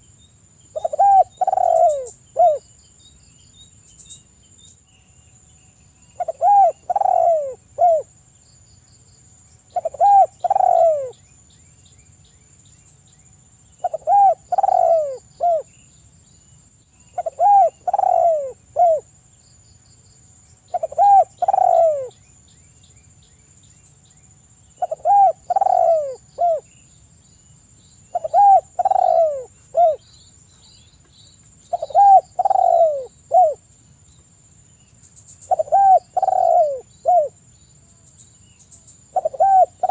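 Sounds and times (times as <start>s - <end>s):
dove cooing: 0.7s - 2.6s, 6.2s - 8.1s, 9.7s - 11.2s, 13.8s - 15.7s, 17.1s - 19.1s, 20.7s - 22.2s, 24.8s - 26.7s, 28.1s - 30.0s, 31.7s - 33.6s, 35.5s - 37.4s, 39.1s - 39.9s.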